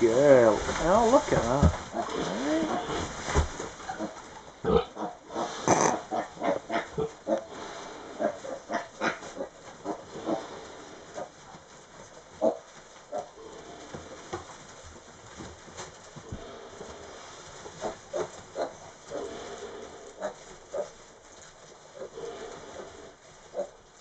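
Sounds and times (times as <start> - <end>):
pigs grunting: 1.6 - 3.1, 3.8 - 11.3, 16.2 - 21.0, 21.9 - 23.8.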